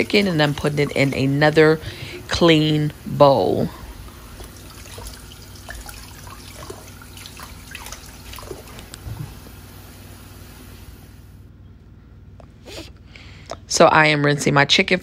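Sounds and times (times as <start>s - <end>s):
faucet running into water: 0.0s - 10.6s
small water splashes: 3.8s - 9.1s.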